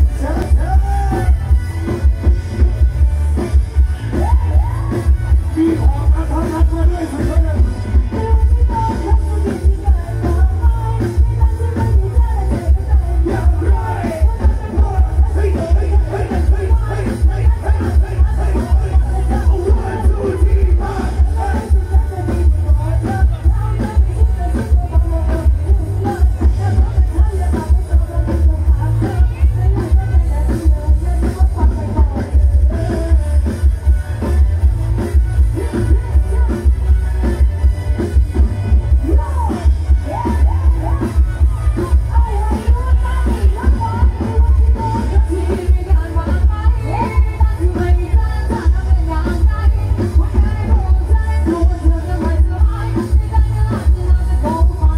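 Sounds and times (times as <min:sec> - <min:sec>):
heavy bass beat: 0:00.0 - 0:54.9
live band music over loudspeakers: 0:00.0 - 0:54.9
people singing: 0:08.3 - 0:30.4.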